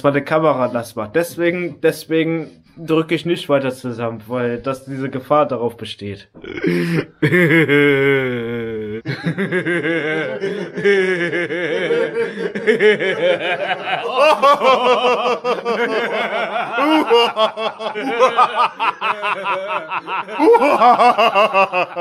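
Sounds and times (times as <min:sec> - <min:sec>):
man laughing hard: 0:06.4 - 0:22.0.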